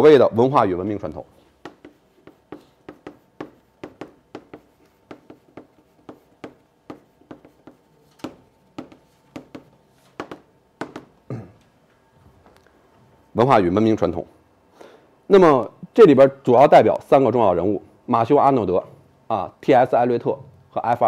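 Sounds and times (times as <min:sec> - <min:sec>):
chalk tapping on blackboard: 0:01.4 - 0:11.2.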